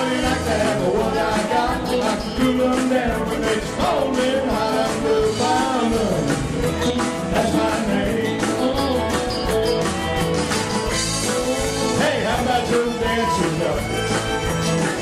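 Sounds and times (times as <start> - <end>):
man singing lead: 0.0 - 9.2, 11.8 - 14.0
live country-rock band: 0.0 - 15.0.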